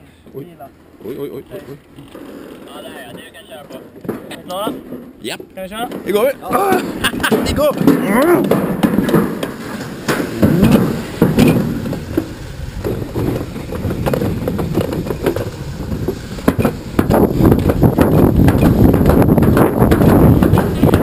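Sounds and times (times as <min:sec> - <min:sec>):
sled rumbling down metal track: 0:05.6 - 0:21.0.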